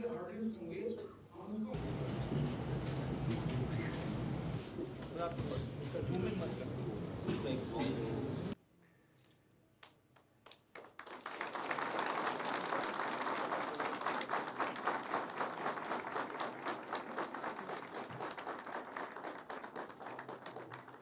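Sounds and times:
audience applauding: 10.5s - 21.0s.

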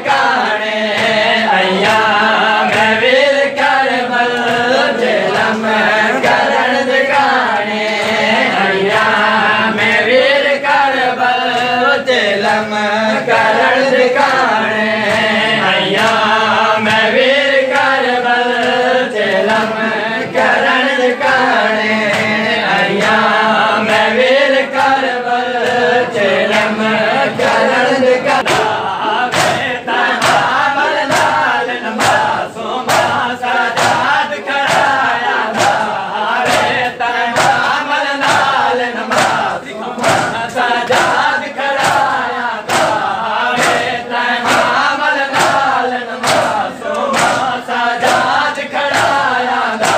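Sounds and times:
men chanting a lament: 0.0s - 49.9s
chest-beating slaps: 28.4s - 49.9s.

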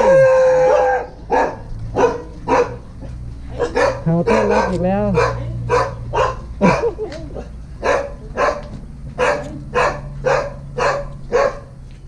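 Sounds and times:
dog barking: 0.0s - 2.8s, 3.5s - 11.7s.

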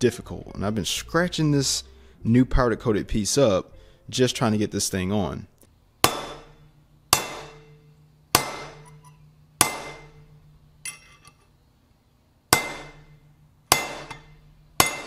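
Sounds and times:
hammer striking steel tube: 6.0s - 11.4s, 12.5s - 15.0s.

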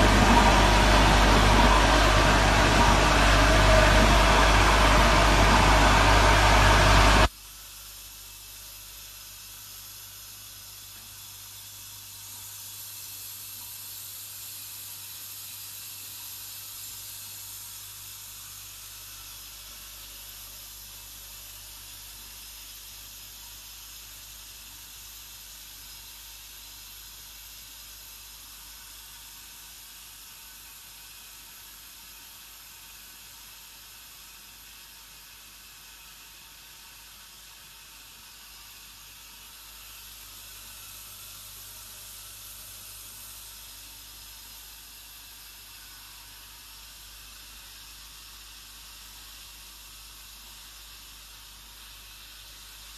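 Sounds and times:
machine mechanical hum: 0.0s - 7.3s.

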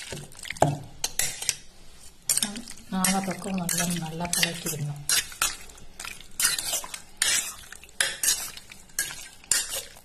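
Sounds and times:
metal spoon scraping steel bowl: 2.3s - 5.7s, 6.4s - 10.0s.

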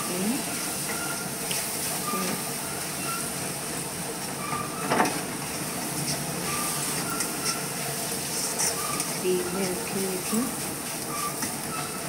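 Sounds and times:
spatula scraping metal pan: 5.6s - 12.0s.

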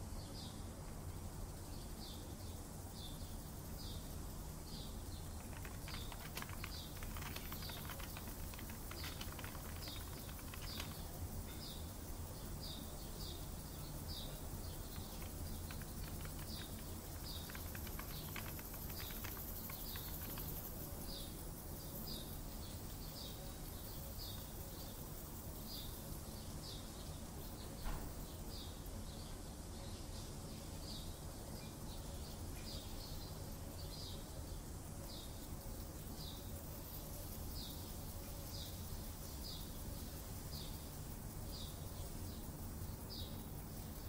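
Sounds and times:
small birds chirping: 0.0s - 44.0s
steady low hum: 0.0s - 44.0s
keyboard typing clicks: 5.3s - 11.1s, 14.8s - 20.8s.

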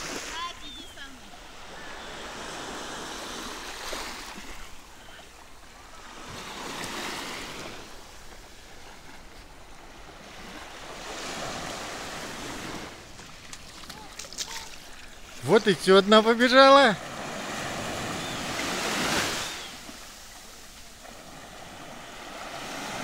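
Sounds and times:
waves washing onto shore: 0.0s - 23.0s.

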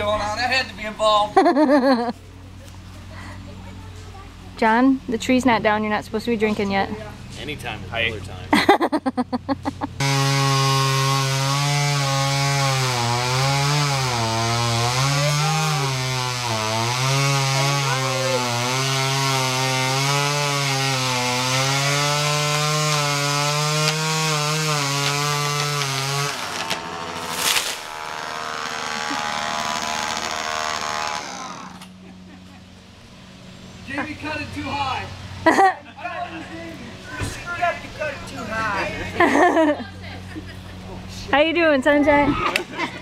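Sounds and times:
chainsaw cutting tree trunk: 9.7s - 32.0s
tree falling rushing noise: 25.1s - 28.7s
sharp crash: 26.6s - 28.0s.

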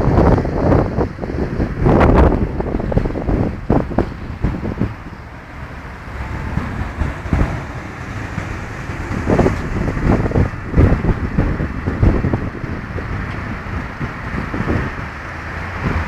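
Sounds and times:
road traffic passing: 0.0s - 16.0s
wind buffeting microphone: 0.0s - 16.0s.

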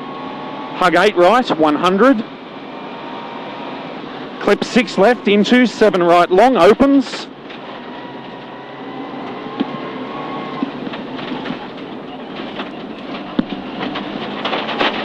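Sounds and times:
car engine running hard: 0.0s - 15.0s
tyres roaring on gravel: 0.0s - 15.0s
gravel clattering against underbody: 10.6s - 15.0s.

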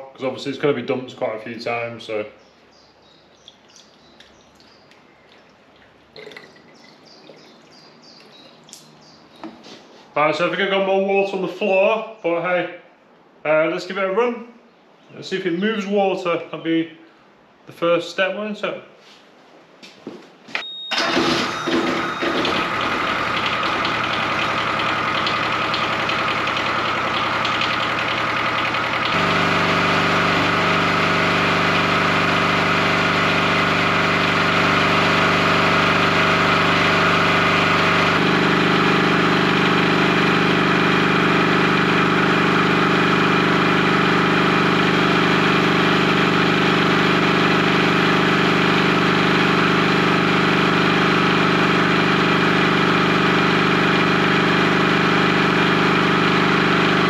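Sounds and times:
generator engine running: 20.9s - 57.0s.

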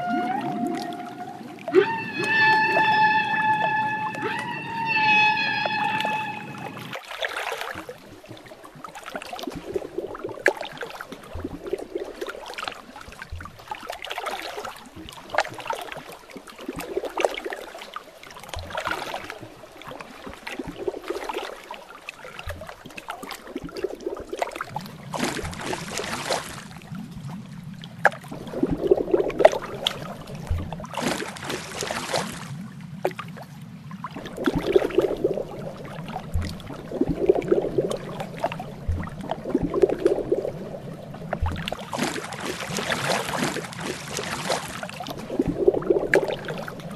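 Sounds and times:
underwater water sloshing and gurgling: 0.0s - 46.9s
faint low thumps: 34.4s - 42.6s.

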